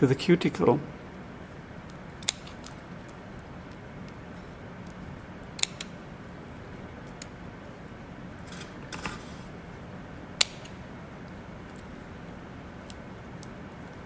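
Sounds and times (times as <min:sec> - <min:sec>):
small scissors snipping shell: 0:01.9 - 0:02.8.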